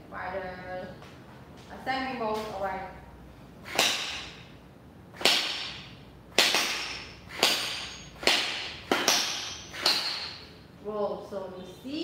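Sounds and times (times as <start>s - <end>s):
gel balls hitting ringing steel plate: 5.2s - 10.5s.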